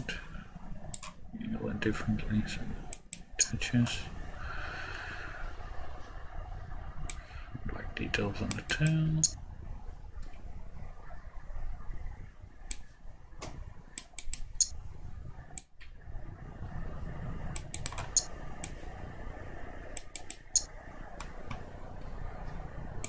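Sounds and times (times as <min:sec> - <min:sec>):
low steady hum: 0:00.0 - 0:23.0
mouse and keyboard clicking: 0:20.0 - 0:20.7.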